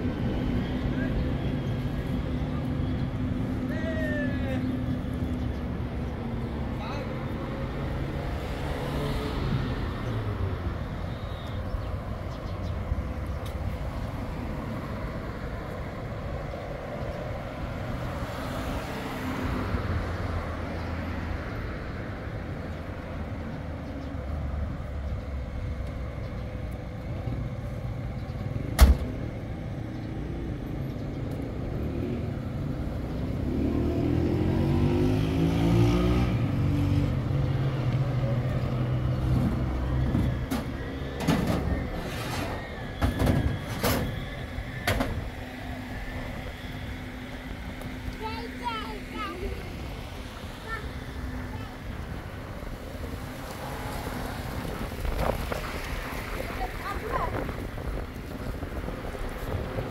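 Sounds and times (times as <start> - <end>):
street traffic rumbling: 0.0 - 59.9
vehicle engine speeding up: 33.2 - 38.1.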